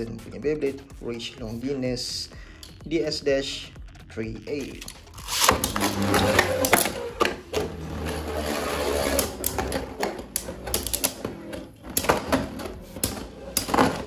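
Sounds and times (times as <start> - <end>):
spinning tops whirring: 5.1 - 14.0.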